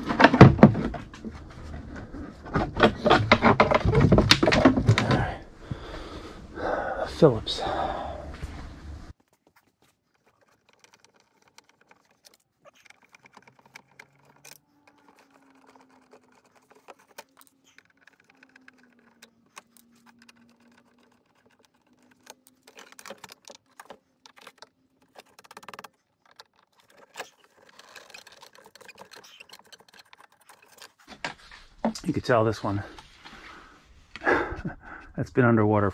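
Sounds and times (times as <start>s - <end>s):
small clicks and metallic rattles: 9.2s - 31.5s.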